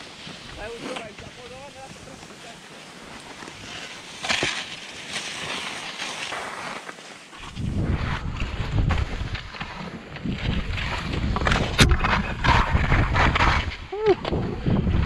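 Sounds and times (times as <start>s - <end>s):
skis hissing through snow: 0.0s - 8.7s
wind buffeting microphone: 7.4s - 15.0s.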